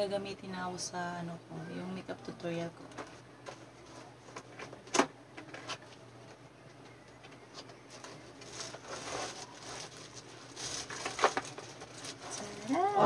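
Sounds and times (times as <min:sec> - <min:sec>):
plastic packaging rustling: 0:07.6 - 0:13.0.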